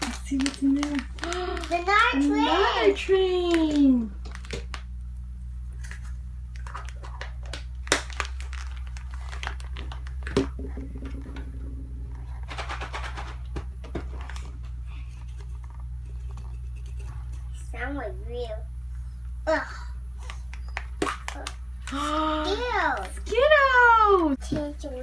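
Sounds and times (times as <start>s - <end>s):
plastic crinkling: 0.0s - 5.0s, 5.7s - 10.5s
steady low hum: 0.0s - 25.0s.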